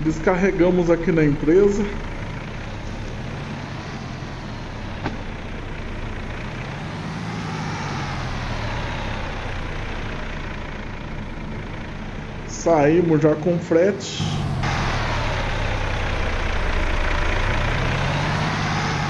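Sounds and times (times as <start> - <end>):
truck diesel engine running: 0.0 - 19.0.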